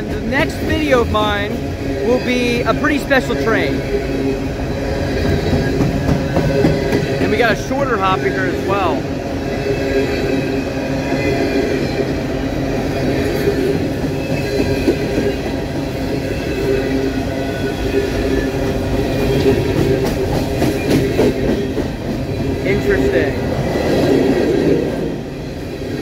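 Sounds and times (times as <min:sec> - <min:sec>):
continuous squealing whine: 0:00.0 - 0:26.0
steel wheels rumbling on rail: 0:00.0 - 0:26.0.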